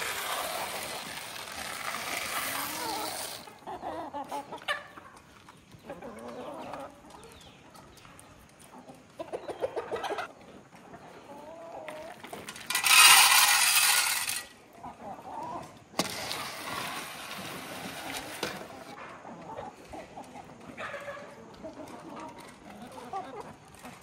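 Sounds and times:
feed pellets poured into metal trough: 0:00.0 - 0:03.6, 0:12.4 - 0:14.6, 0:16.0 - 0:18.9
hens clucking: 0:00.0 - 0:12.5, 0:14.7 - 0:16.0, 0:17.9 - 0:24.0.

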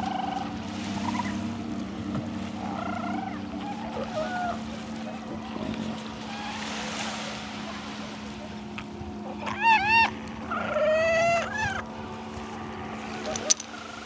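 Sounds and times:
small waves washing: 0:00.0 - 0:14.0
young seals bleating: 0:09.3 - 0:11.9.

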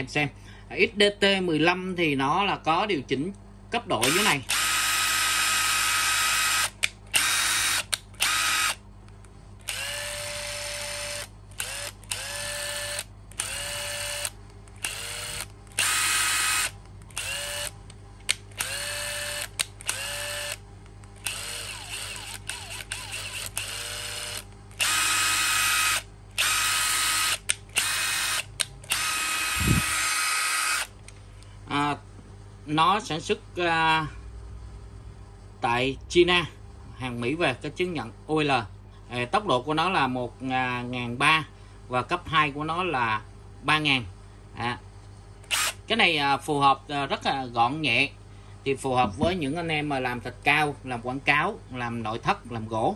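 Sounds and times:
impact driver motor whining: 0:04.0 - 0:08.8, 0:09.6 - 0:17.8, 0:18.5 - 0:20.6, 0:21.2 - 0:30.9, 0:45.5 - 0:45.8.

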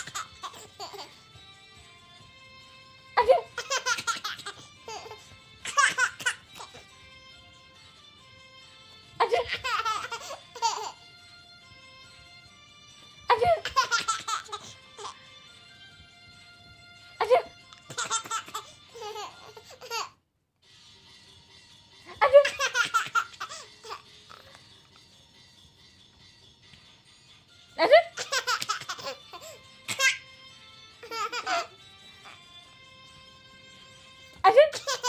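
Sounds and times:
baby laughing: 0:00.0 - 0:01.2, 0:03.2 - 0:06.9, 0:09.2 - 0:11.0, 0:13.3 - 0:15.2, 0:17.2 - 0:20.2, 0:22.1 - 0:24.6, 0:27.8 - 0:30.3, 0:31.0 - 0:32.4, 0:34.5 - 0:35.0
quiet background music: 0:00.0 - 0:35.0.

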